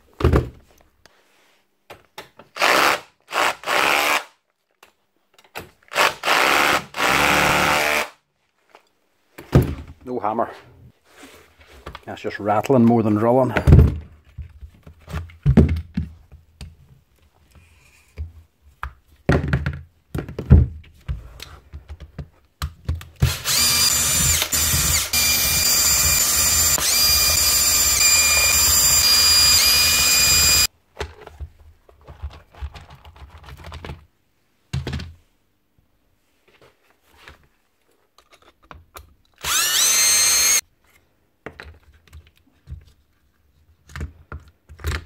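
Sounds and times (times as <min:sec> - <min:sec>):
cordless drill motor whine: 0:23.4 - 0:30.7, 0:39.4 - 0:40.6.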